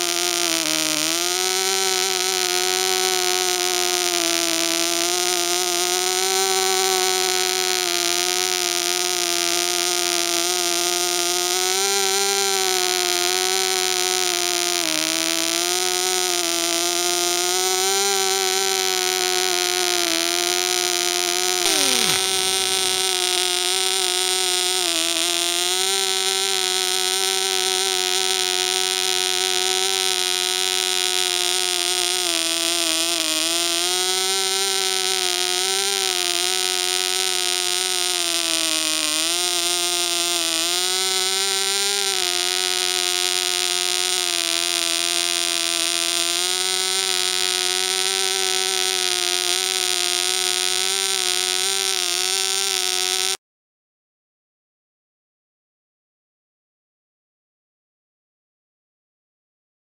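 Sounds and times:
model engine high buzz: 15.0 - 53.4
falling swoop: 21.7 - 22.9.

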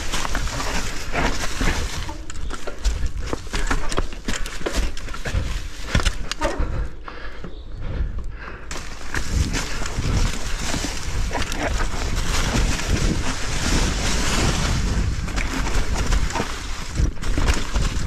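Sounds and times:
bike tyres rolling through dry leaves: 0.0 - 6.9, 8.7 - 18.0
bike knocking: 0.0 - 18.0
wind rush on microphone: 7.8 - 18.0.

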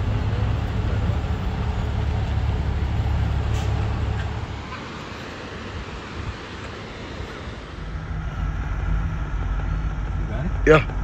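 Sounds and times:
car road and wind rumble: 0.0 - 11.0
river rapids rushing: 2.6 - 8.0.

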